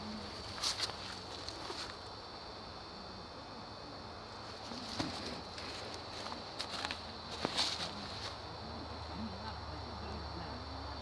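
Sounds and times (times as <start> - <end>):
faint steady hiss: 0.0 - 11.0
footsteps on dry leaves: 4.8 - 8.4.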